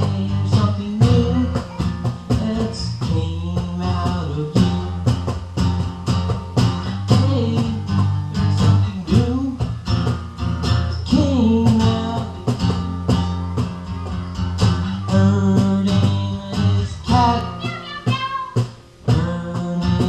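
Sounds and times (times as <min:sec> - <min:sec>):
man singing: 0:00.0 - 0:05.3, 0:06.8 - 0:09.8, 0:10.9 - 0:12.9, 0:14.8 - 0:20.0
acoustic guitar strumming: 0:00.0 - 0:20.0.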